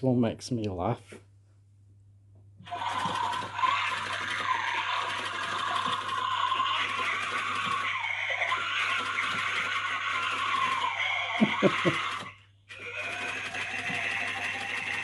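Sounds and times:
small electric motor whirring: 0:11.8 - 0:15.0.

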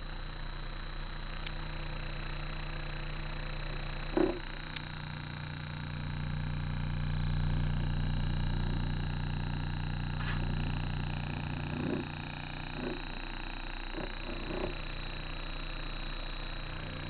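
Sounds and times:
woofer playing low bass tone: 0:01.5 - 0:17.0
speaker driver knock: 0:04.2 - 0:04.4.

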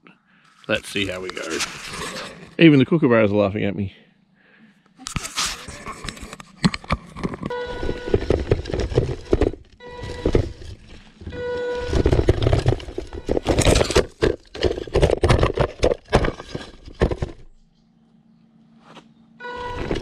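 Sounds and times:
robot clattering down dirt slope: 0:05.1 - 0:17.6, 0:19.6 - 0:20.0.

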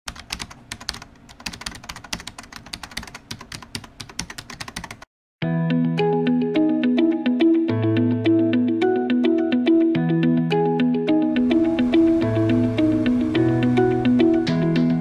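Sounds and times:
fast irregular clicking: 0:00.1 - 0:05.1
music with held notes: 0:05.4 - 0:15.0.

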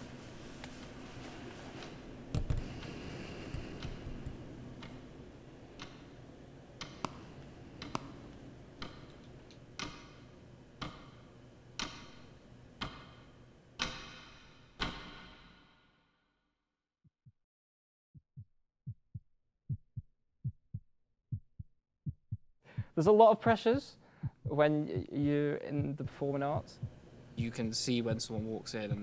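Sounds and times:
low room hum: 0:00.0 - 0:15.8, 0:22.6 - 0:29.0
clock ticking: 0:23.5 - 0:29.0.

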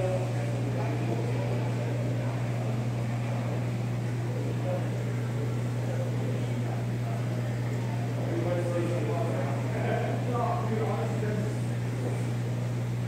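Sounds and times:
aquarium pump humming: 0:00.0 - 0:13.0.

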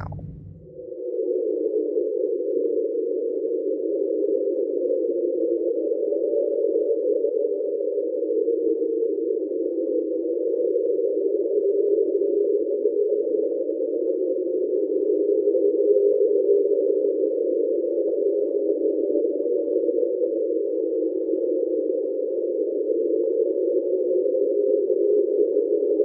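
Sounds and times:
rough underwater drone: 0:00.0 - 0:00.8.

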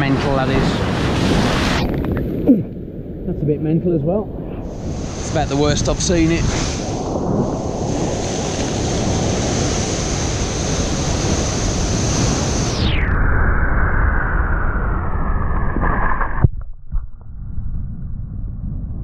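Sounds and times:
wind buffeting microphone: 0:00.0 - 0:13.9
surf breaking on rocks: 0:04.9 - 0:12.7.

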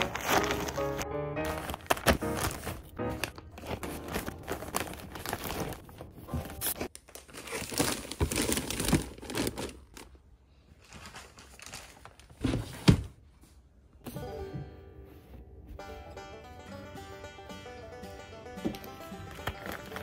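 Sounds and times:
plastic bags crinkling: 0:00.0 - 0:12.4, 0:19.2 - 0:20.0.

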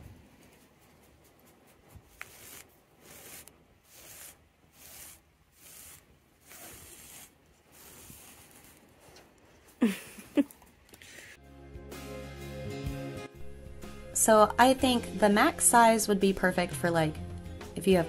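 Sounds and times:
metal blade raking fabric: 0:02.0 - 0:09.3.

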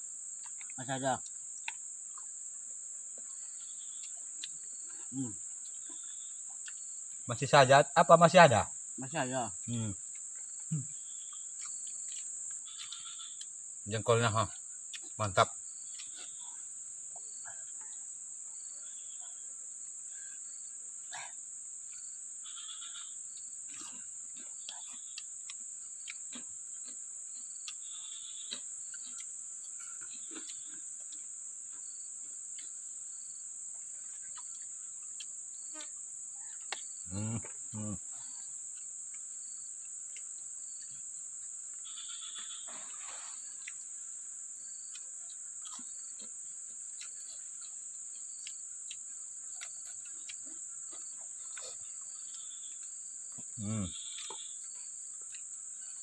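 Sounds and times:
insects chirping: 0:00.0 - 0:56.0
faint ticks: 0:00.4 - 0:02.3, 0:09.6 - 0:13.6, 0:15.8 - 0:16.5, 0:46.9 - 0:55.6.

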